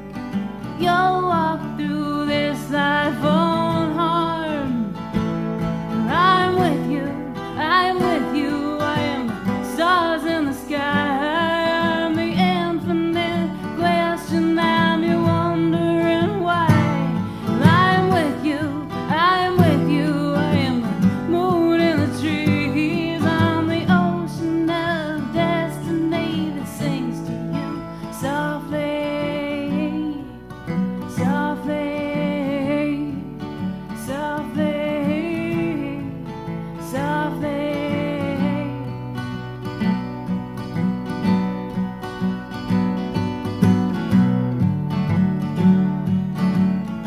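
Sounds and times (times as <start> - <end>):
acoustic guitar: 0.0 - 47.0
person singing: 0.8 - 5.0, 6.1 - 30.4, 31.1 - 33.4, 34.0 - 36.2, 36.8 - 39.0.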